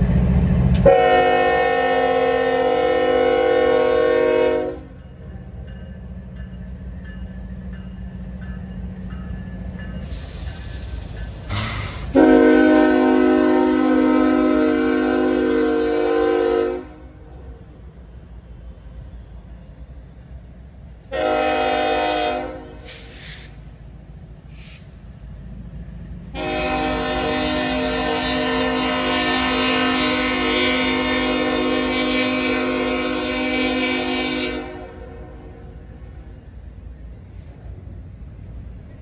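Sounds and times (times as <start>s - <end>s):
low rumble of passing train: 0.0s - 39.0s
locomotive air horn blasts: 0.8s - 5.0s, 11.5s - 17.1s, 21.1s - 23.1s, 26.3s - 35.5s.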